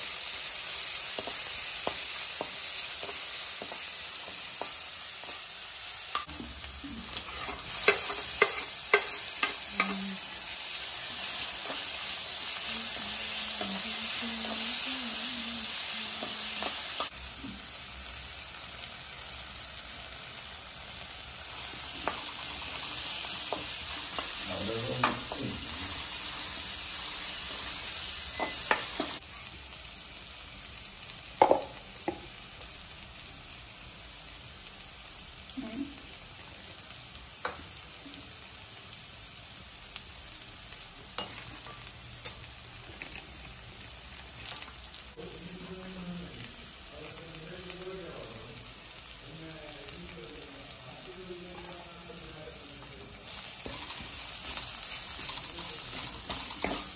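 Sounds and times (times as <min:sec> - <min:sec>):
onions sizzling in hot oil: 0:00.0 - 0:56.9
metal spoon scraping a pan: 0:07.0 - 0:10.3, 0:53.3 - 0:56.9.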